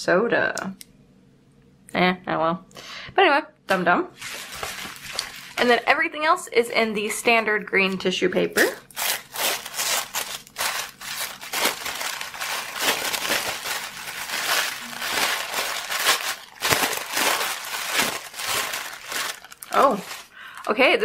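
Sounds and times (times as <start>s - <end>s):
tissue paper crinkling: 4.2s - 5.9s, 8.8s - 21.0s.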